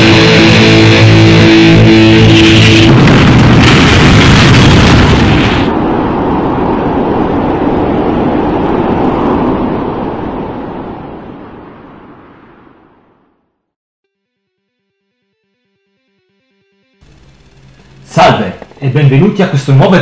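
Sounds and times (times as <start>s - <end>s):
explosion rumbling: 0.0s - 11.6s.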